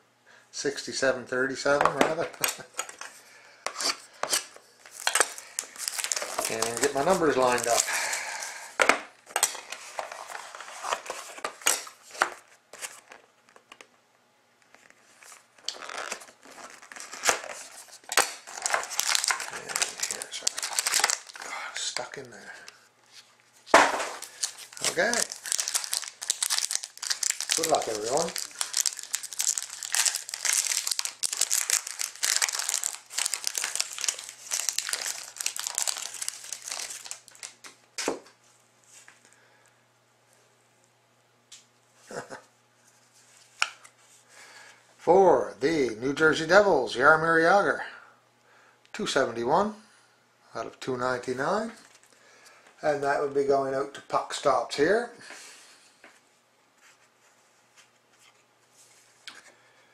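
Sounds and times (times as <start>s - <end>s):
plastic shrink wrap crinkling: 3.8s - 13.3s, 14.7s - 37.8s.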